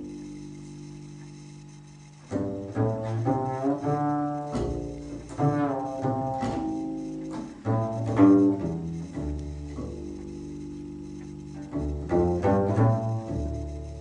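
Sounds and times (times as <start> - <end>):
double bass notes: 0.0 - 14.0.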